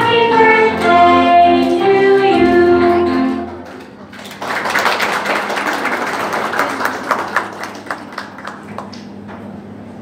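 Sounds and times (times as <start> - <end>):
audience applauding: 3.6 - 9.2.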